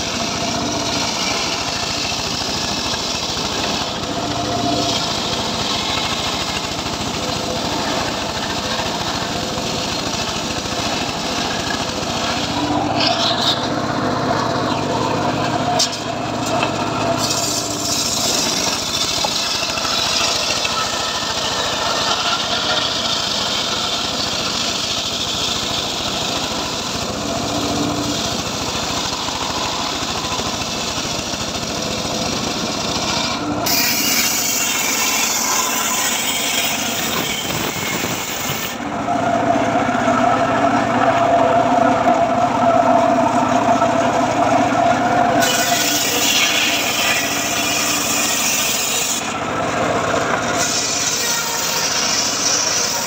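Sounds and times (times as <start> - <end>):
circular saw ripping log: 0.0 - 38.9, 45.2 - 53.0
steady whine: 0.0 - 46.2.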